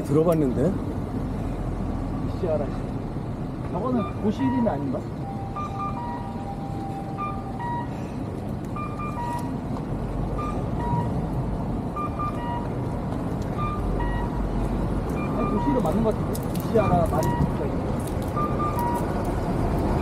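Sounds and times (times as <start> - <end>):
cars driving by: 0.0 - 20.0
short electronic beeps: 3.9 - 7.9, 10.4 - 11.2, 12.0 - 12.7, 13.6 - 14.4, 15.2 - 15.9.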